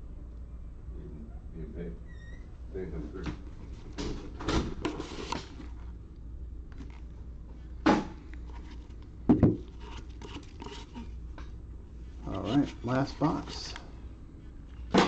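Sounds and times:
cardboard box rustling and scraping: 4.8s - 5.8s, 9.6s - 11.2s, 12.3s - 13.5s
sharp knocks on box: 9.3s - 9.6s.

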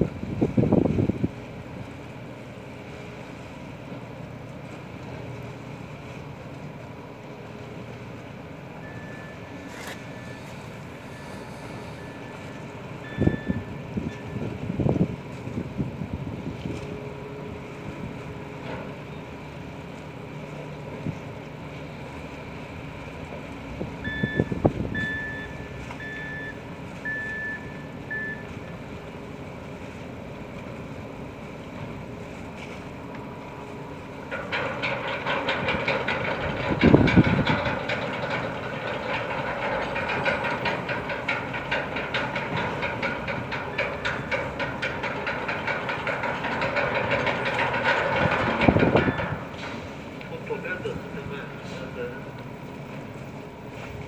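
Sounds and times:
low machinery hum: 0.0s - 54.0s
high electronic warning beeps: 8.8s - 14.4s, 24.0s - 28.6s
rapid mechanical clatter: 34.3s - 49.5s.

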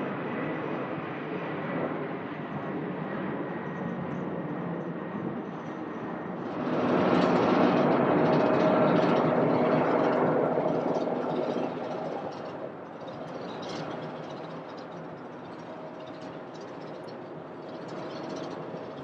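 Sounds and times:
jet engine whine: 0.0s - 19.0s
jet engine rush: 5.2s - 19.0s.

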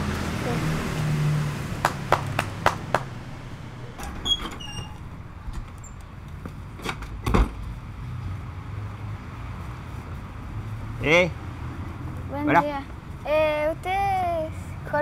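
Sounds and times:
door squeak: 3.9s - 5.1s.

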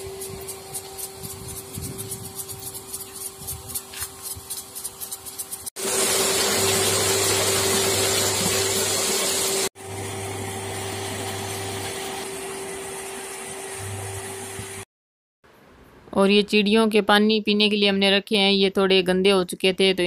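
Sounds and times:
water gushing into a tank: 5.8s - 13.3s.

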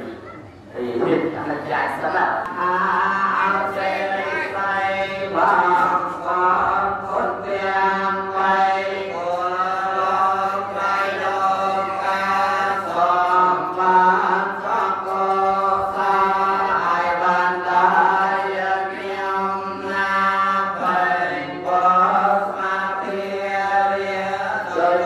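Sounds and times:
voices chanting in unison: 0.8s - 25.0s.

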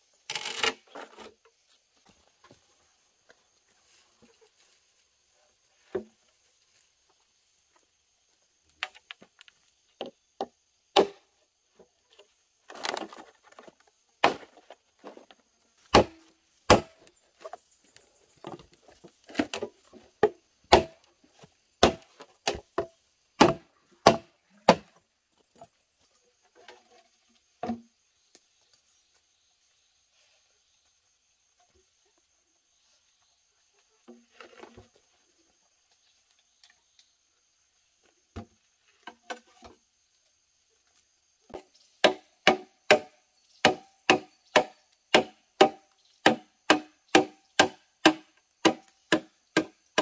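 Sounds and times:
machete chopping bamboo: 10.9s - 11.3s, 14.2s - 14.6s, 15.9s - 17.1s, 19.3s - 21.1s, 21.8s - 24.9s, 42.0s - 50.0s.

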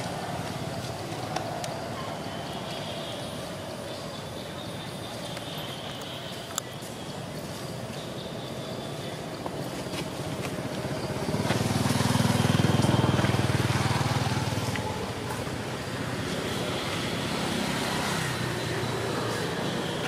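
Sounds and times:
vehicle engine passing by: 10.5s - 20.0s.

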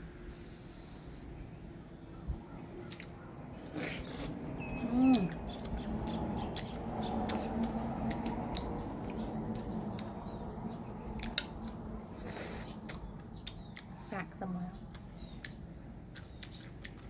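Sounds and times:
person chewing food: 2.8s - 10.5s, 11.1s - 13.9s, 14.9s - 17.0s.

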